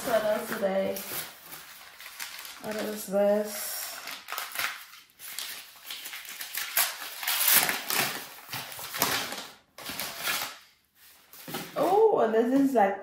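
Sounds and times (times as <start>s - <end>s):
paper wrapping crinkling: 0.0s - 12.0s.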